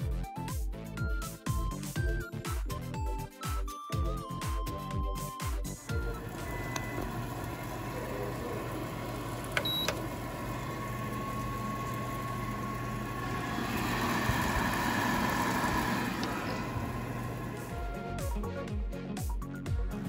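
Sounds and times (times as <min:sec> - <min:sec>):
air fryer fan hum: 0:05.8 - 0:18.2.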